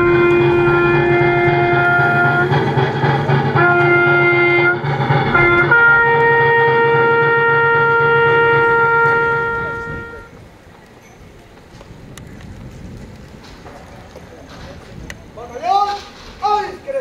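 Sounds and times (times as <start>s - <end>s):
bugle call: 0.0s - 2.6s, 3.6s - 10.3s.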